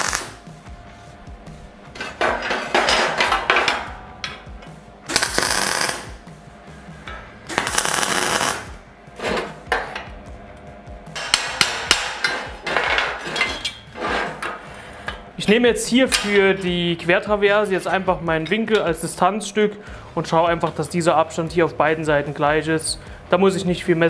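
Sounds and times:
crackling welding arc bursts: 0.0s - 0.4s, 5.1s - 6.2s, 7.5s - 8.8s.

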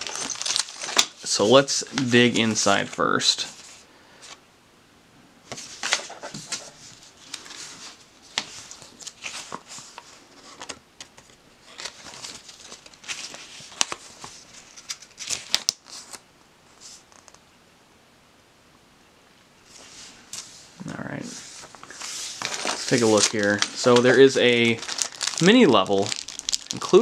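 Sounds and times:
paper rustling and crinkling: 0.0s - 4.4s, 5.5s - 17.4s, 19.7s - 27.0s.

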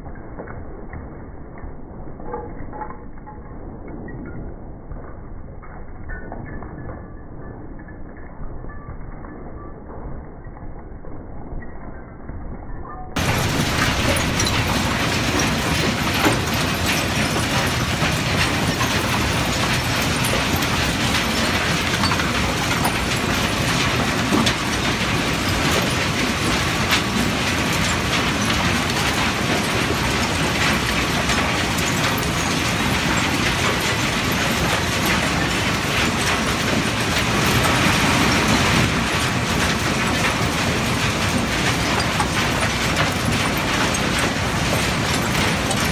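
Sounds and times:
conveyor machinery running: 13.2s - 45.9s
debris clicking and knocking: 13.2s - 45.9s.

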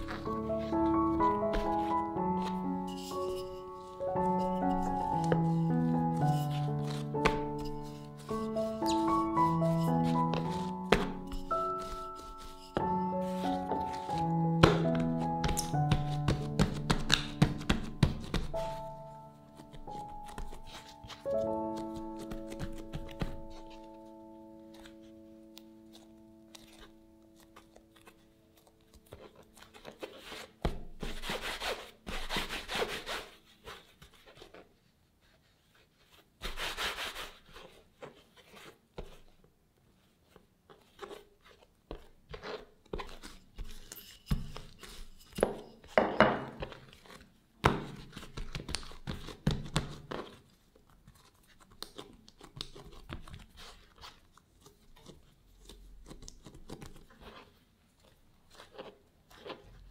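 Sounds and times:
hands rubbing dough on board: 0.0s - 24.1s, 25.8s - 39.4s, 40.0s - 59.9s.

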